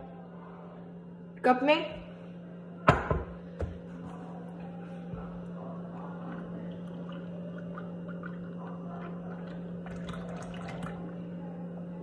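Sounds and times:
steady low hum: 0.0s - 12.0s
milk pouring into a mug: 5.1s - 12.0s.

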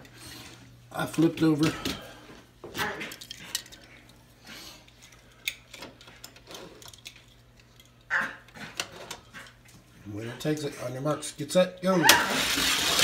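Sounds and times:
toy cars clicking and clattering: 3.1s - 3.9s, 5.1s - 8.0s.

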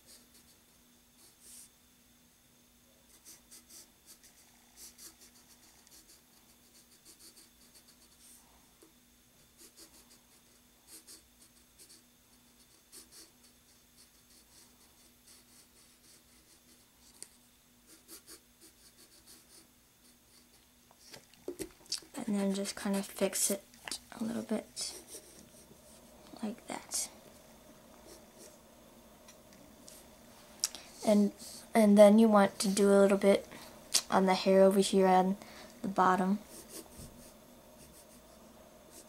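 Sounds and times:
pencil scratching on paper: 0.0s - 0.6s, 3.1s - 8.4s, 9.4s - 17.3s, 17.9s - 20.6s, 22.2s - 23.6s, 24.2s - 26.1s, 28.0s - 28.6s, 36.4s - 39.0s.

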